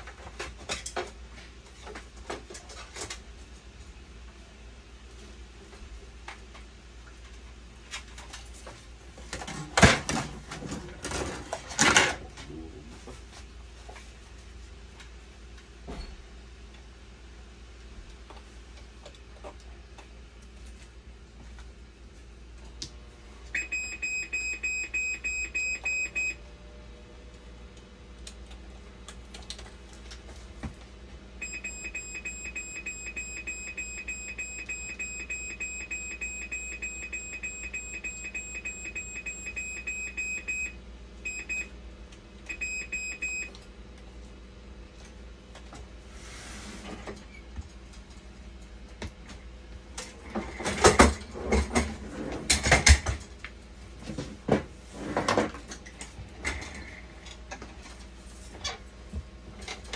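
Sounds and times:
machine low hum: 0.0 - 59.9
machine alarm beeping rapidly: 23.6 - 26.4, 31.4 - 41.7, 42.5 - 43.5.

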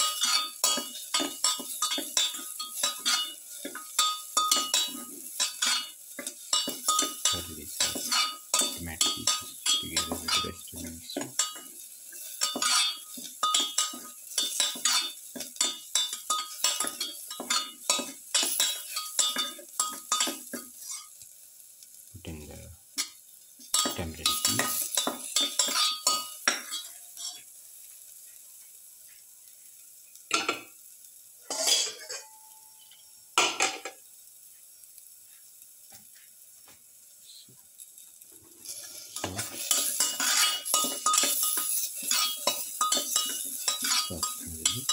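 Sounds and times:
metal spatula scraping a pan: 0.0 - 21.2, 23.0 - 27.5, 31.4 - 33.1, 38.6 - 44.9
light sizzle: 0.0 - 44.9.

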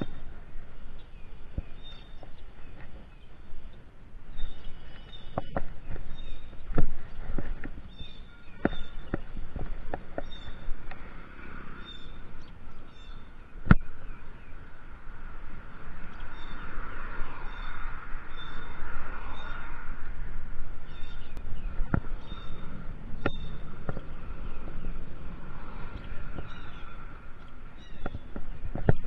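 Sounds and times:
bike tyres on paved road: 0.0 - 29.0
wind noise: 0.0 - 29.0
high bird chirps: 20.8 - 23.6, 26.0 - 27.1, 27.7 - 28.3.

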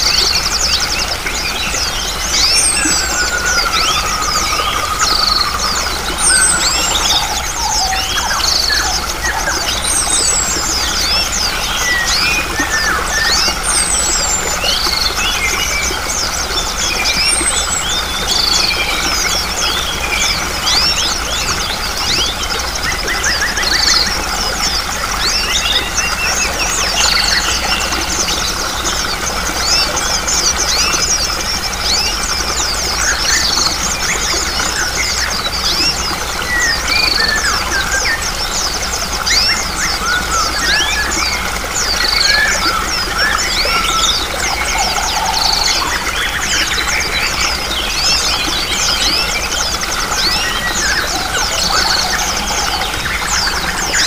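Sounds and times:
running water: 0.0 - 54.0
songbirds chirping and trilling: 0.0 - 54.0
high falling whistle: 2.4 - 7.5.

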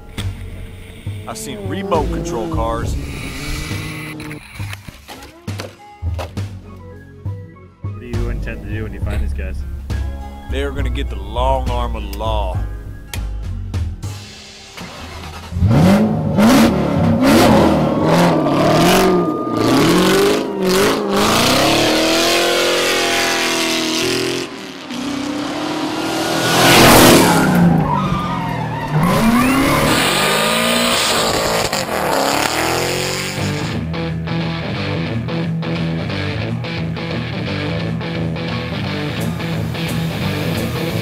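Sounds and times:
car engine revving hard: 0.9 - 4.3, 14.8 - 28.2, 28.9 - 33.8.

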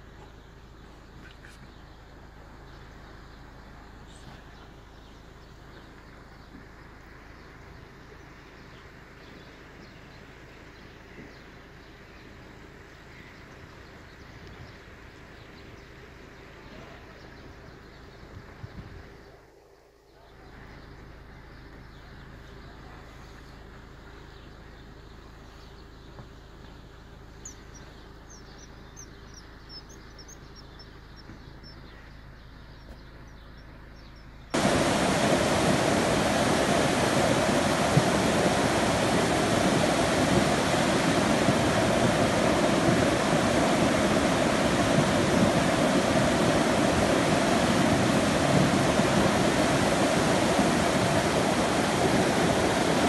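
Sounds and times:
faint high chirps: 15.6 - 34.6
quiet wash of water: 34.5 - 53.0
torrent of rushing water: 34.5 - 53.0.

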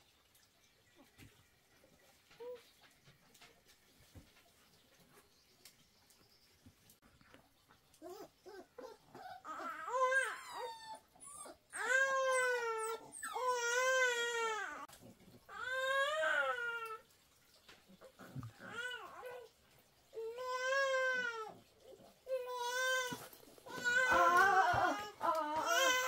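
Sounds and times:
baby crying: 22.3 - 26.0.

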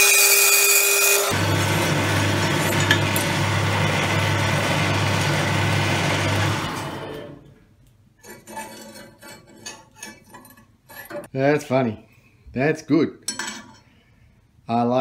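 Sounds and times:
bandsaw humming and winding down: 0.0 - 7.4
metal clinking on saw table: 13.3 - 13.8.

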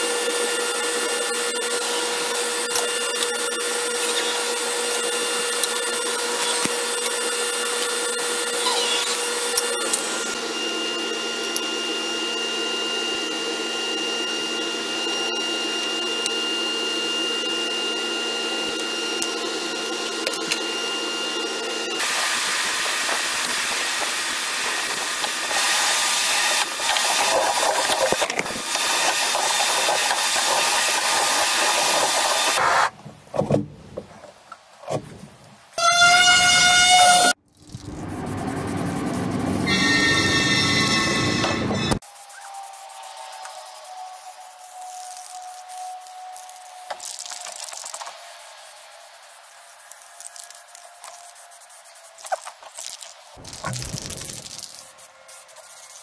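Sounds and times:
dust extractor running: 0.0 - 32.8
woodshop power tools running: 0.0 - 33.0, 38.0 - 44.9.

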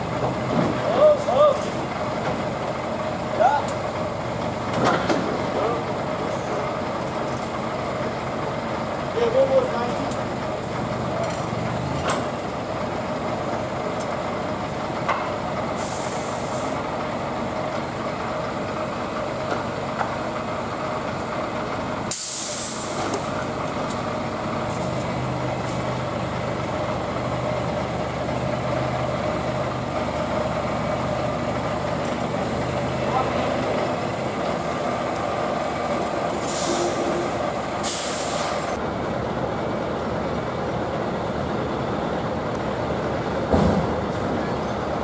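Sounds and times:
diesel truck engine idling: 0.0 - 45.0
air brake release hiss: 15.8 - 16.8, 22.1 - 23.3, 36.4 - 38.8.

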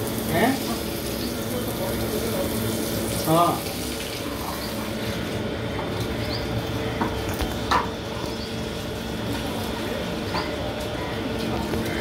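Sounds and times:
water running from a tap: 0.0 - 6.7.

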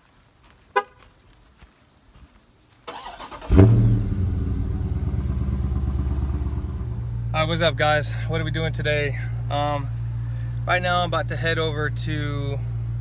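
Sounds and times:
car engine starting and idling: 2.9 - 13.0.

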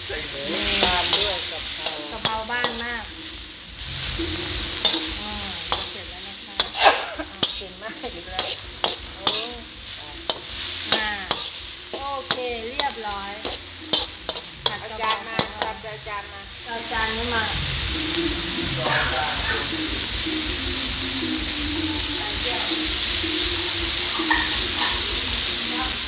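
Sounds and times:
meat sizzling in a wok: 0.0 - 26.0
metal spatula scraping wok: 0.3 - 3.1, 4.0 - 19.7, 24.0 - 25.0.

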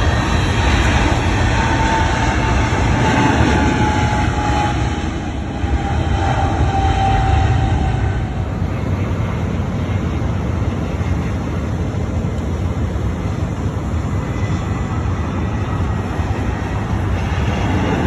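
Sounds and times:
thin engine whine: 0.0 - 8.9
jet engines roaring: 0.0 - 18.0.

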